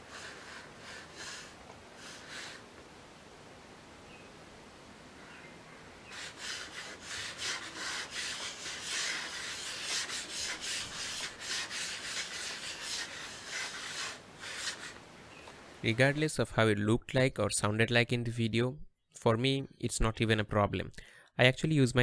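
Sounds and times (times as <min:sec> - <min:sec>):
mouse scratching on metal pad: 0:06.1 - 0:15.0.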